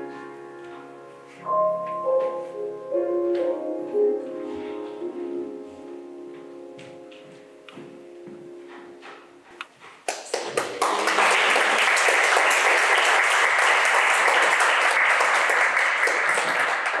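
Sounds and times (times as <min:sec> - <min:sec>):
piano and violin chord: 0:00.0 - 0:09.5
audience applause: 0:10.1 - 0:17.0.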